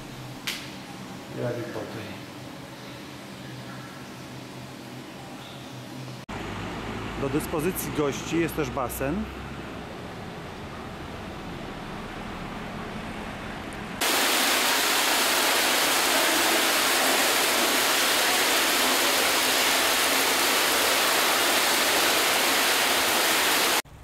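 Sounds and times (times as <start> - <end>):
fountain jet splashing into pool: 14.0 - 23.8.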